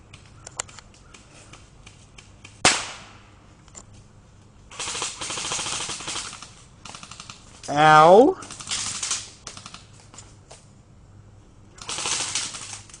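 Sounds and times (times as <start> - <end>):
airsoft gun shots: 2.6 - 3.2
rapid automatic fire: 4.7 - 7.4, 8.4 - 9.9, 11.8 - 13.0.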